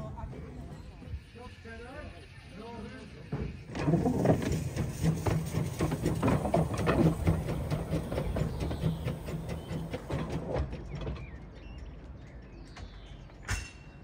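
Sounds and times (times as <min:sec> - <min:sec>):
steam locomotive clattering: 0:02.6 - 0:14.0.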